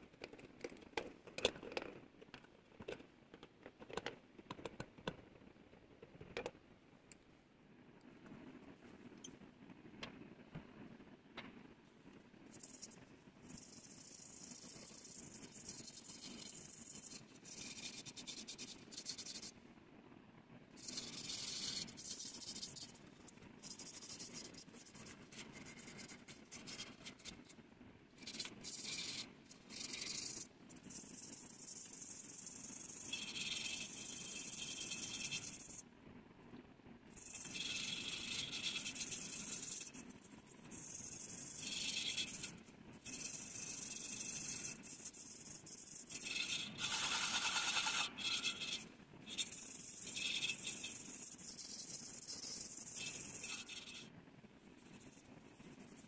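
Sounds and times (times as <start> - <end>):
tool scraping brass bowl: 33.0 - 35.8, 37.2 - 40.0, 41.0 - 54.1.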